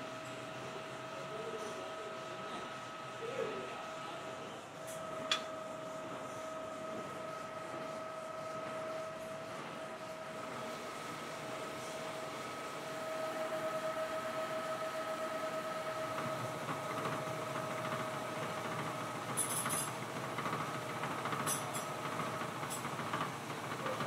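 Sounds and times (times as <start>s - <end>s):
machine mechanical whine: 11.9s - 19.9s
rattling machine running noise: 15.6s - 24.0s.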